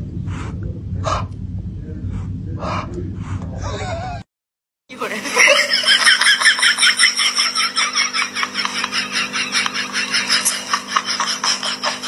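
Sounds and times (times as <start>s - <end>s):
steady hum: 0.0s - 4.2s, 4.9s - 12.0s
man laughing softly: 3.6s - 4.2s.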